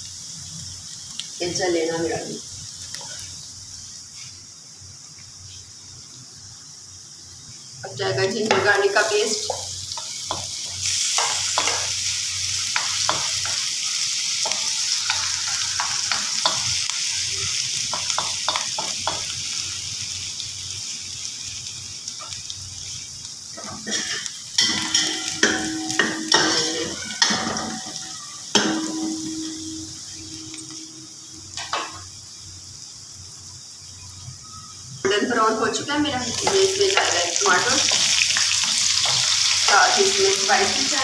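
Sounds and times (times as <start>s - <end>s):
onions sizzling in hot oil: 0.0s - 41.0s
metal spoon stirring a pan: 8.5s - 17.1s, 23.6s - 31.0s, 36.2s - 40.7s.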